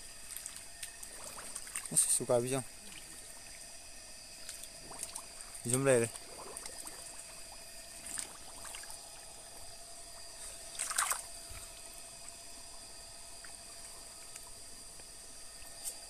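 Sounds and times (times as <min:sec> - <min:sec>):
wet squelch in mud: 0:00.3 - 0:02.0, 0:08.0 - 0:09.0, 0:10.7 - 0:11.8.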